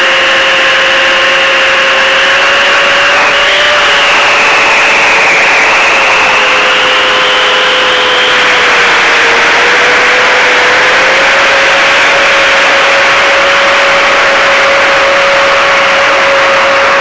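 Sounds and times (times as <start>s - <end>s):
drone motors whining: 0.0s - 17.0s
propeller rush: 0.0s - 17.0s.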